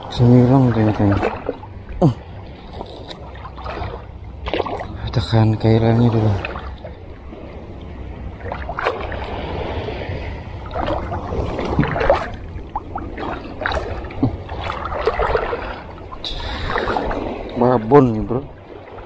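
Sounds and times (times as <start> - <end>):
fish splashing in water: 2.7 - 5.0, 8.4 - 17.5.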